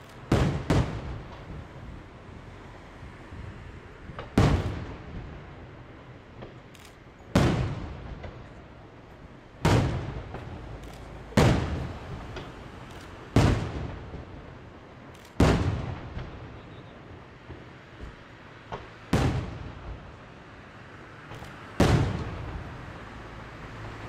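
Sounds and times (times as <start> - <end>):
small firework cracks: 0.0 - 1.7, 4.1 - 5.3, 9.6 - 14.4, 15.1 - 20.2, 21.3 - 22.8
firework shells booming: 0.2 - 1.6, 7.3 - 8.5, 9.6 - 14.3, 15.3 - 16.7, 18.7 - 20.1, 21.3 - 22.7.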